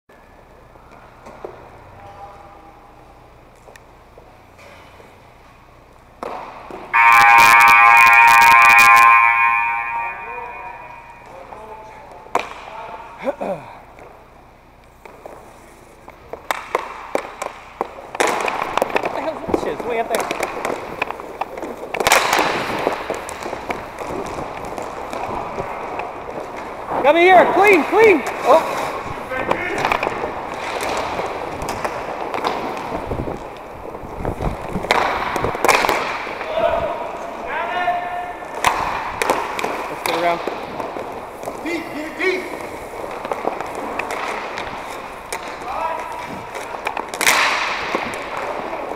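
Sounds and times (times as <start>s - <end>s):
skate wheels rolling: 0.1s - 48.9s
hockey sticks clacking: 0.8s - 2.3s, 3.4s - 13.1s, 13.8s - 48.9s.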